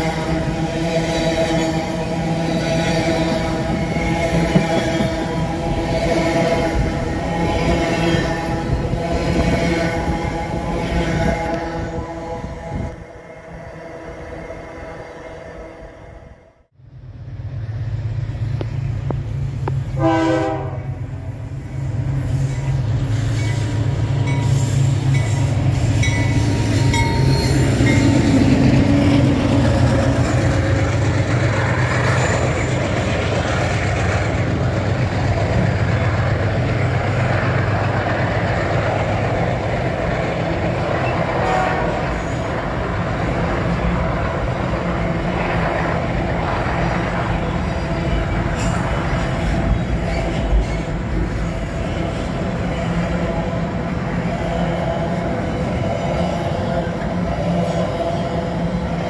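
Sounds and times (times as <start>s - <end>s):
locomotive horn blast: 0.0s - 16.6s, 19.7s - 21.5s, 40.9s - 42.9s
locomotive engines droning: 0.0s - 59.0s.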